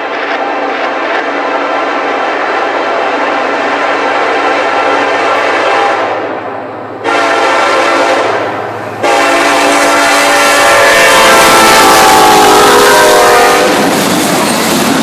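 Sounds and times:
locomotive air horn blasts: 4.4 - 6.3, 7.0 - 13.9.

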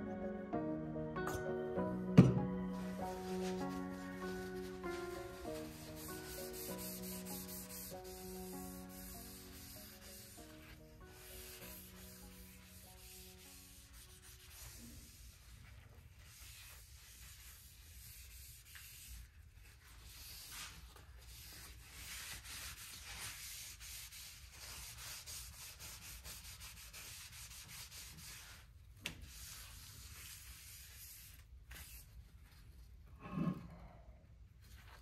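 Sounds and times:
rag wiping wooden board: 2.8 - 19.2.

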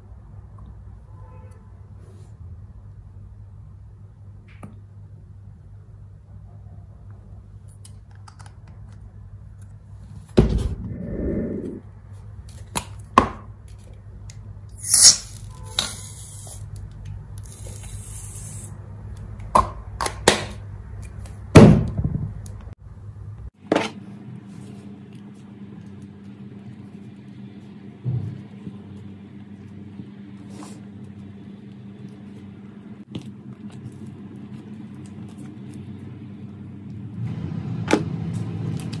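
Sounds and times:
low hum: 10.4 - 12.0.

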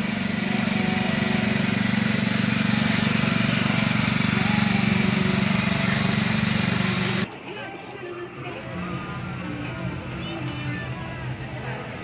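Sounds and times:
small engine puttering: 0.0 - 7.3.

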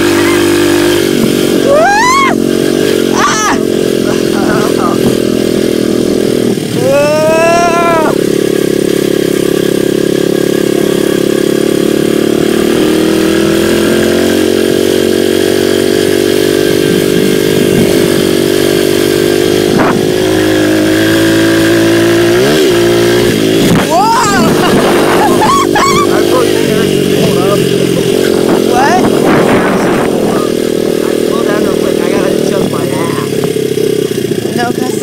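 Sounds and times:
dirt bike engine running: 0.0 - 35.0.

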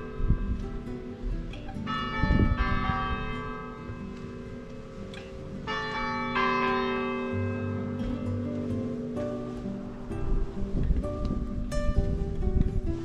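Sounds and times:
bells ringing: 1.7 - 10.4.

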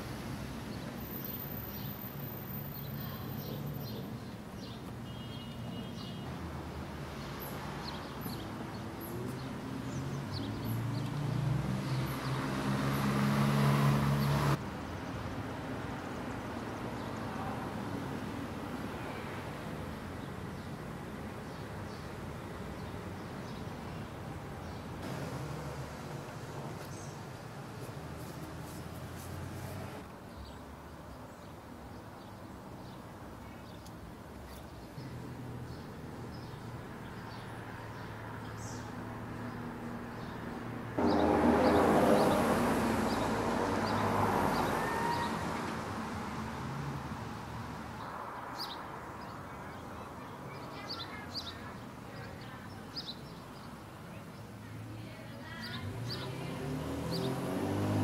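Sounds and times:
low rumble of traffic: 0.0 - 58.0
songbirds chirping: 0.0 - 58.0.

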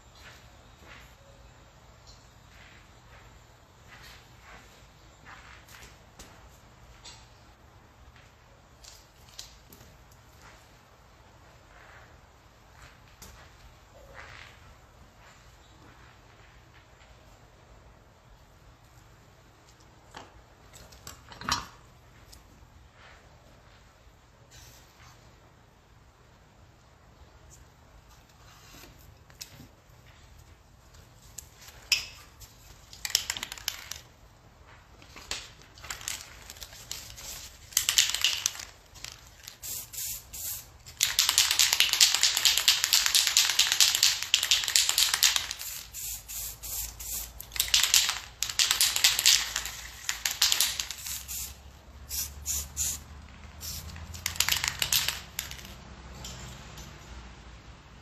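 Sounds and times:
aerosol spray can hissing: 39.5 - 55.6.

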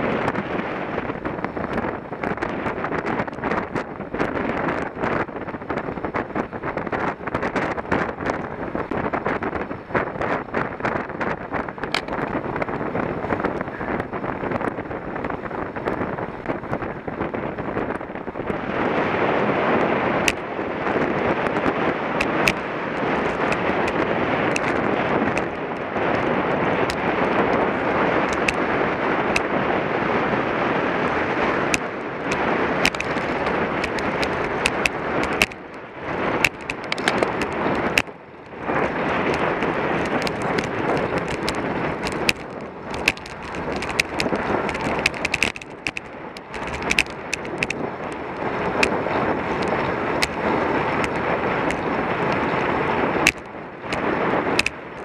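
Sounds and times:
wind buffeting microphone: 0.0 - 55.0
sharp clicks and knocks: 11.8 - 12.4, 20.2 - 20.4, 22.2 - 25.8, 28.3 - 28.6, 31.7 - 35.8, 36.4 - 38.2, 39.3 - 50.4, 53.2 - 55.0.

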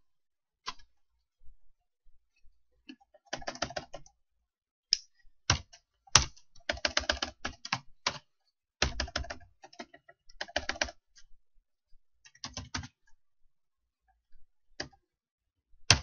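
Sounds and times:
computer keyboard typing: 3.2 - 4.1, 5.5 - 11.0, 12.3 - 13.0.

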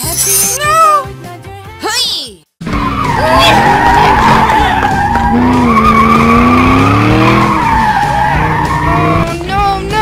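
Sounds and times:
racing car engine revving: 2.6 - 9.6.

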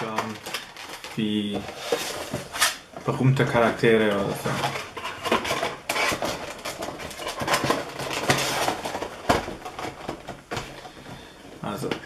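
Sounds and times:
plastic case and cardboard box handled: 0.0 - 12.0.

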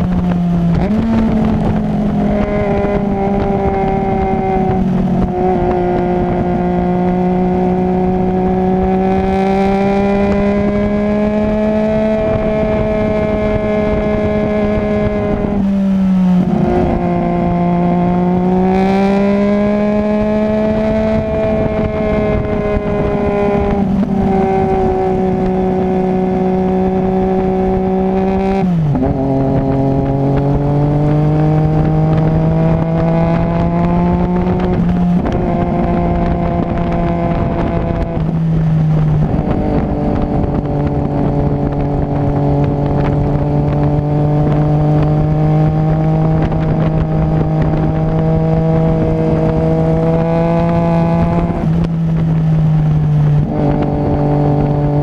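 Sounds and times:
motorcycle engine running: 0.0 - 55.0
wind rush: 0.0 - 55.0.

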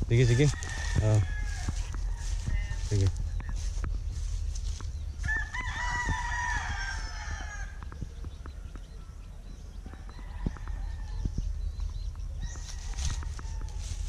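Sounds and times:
rooster crowing: 0.2 - 3.0, 5.2 - 8.0, 9.9 - 11.3, 12.4 - 14.0.

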